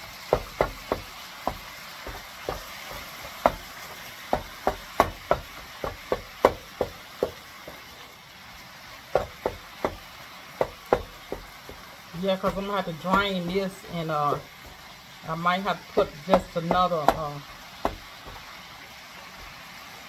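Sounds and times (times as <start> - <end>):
meat sizzling in a skillet: 0.0 - 20.0
utensil knocking and scraping pan: 0.3 - 7.8, 10.6 - 14.8, 16.0 - 18.5.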